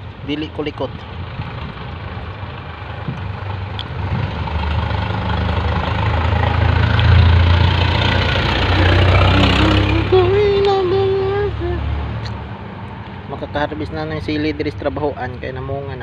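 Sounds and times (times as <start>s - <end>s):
large engine droning: 1.1s - 12.7s.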